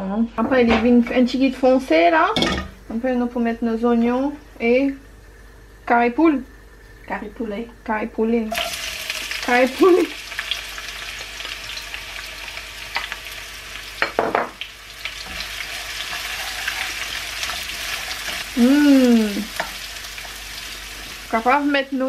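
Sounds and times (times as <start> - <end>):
onions sizzling in hot oil: 8.5 - 22.0
person giving short voiced sound: 18.6 - 19.5.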